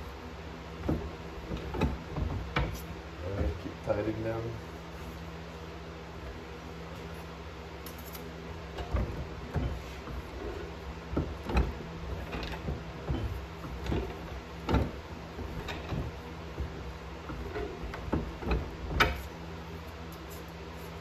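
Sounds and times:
steady low hum: 0.0 - 21.0
metallic clunks from rollers: 8.7 - 19.3.

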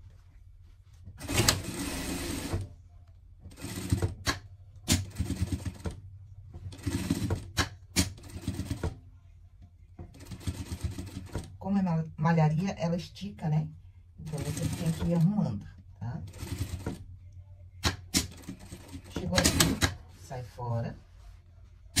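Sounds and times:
sewing machine stitching: 1.2 - 2.7, 3.5 - 6.0, 6.7 - 9.0, 10.1 - 11.5, 14.2 - 15.4, 16.2 - 17.0, 17.8 - 20.0.

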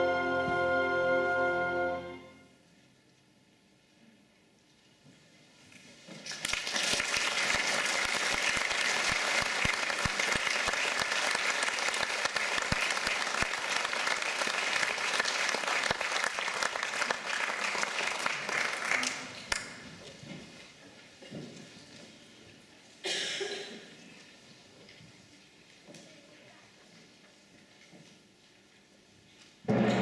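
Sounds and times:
audience applauding: 6.2 - 19.8.

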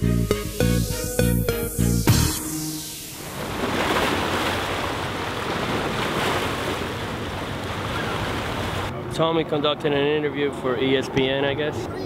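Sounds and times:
small waves washing against rocks: 3.3 - 8.9.

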